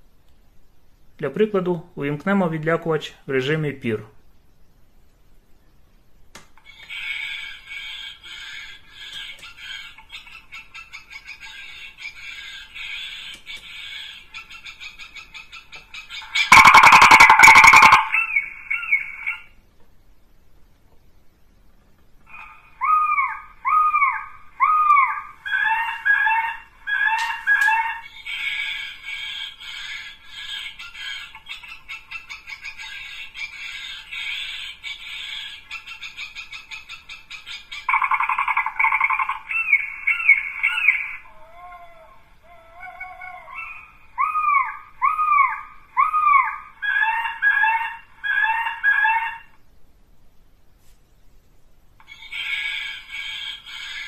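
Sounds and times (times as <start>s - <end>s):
recorded bird cries from speaker: 13.8s - 19.6s, 22.3s - 49.5s.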